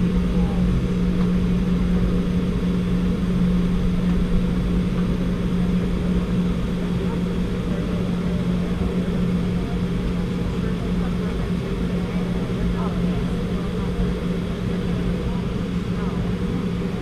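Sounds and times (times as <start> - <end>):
aircraft cabin drone: 0.0 - 17.0.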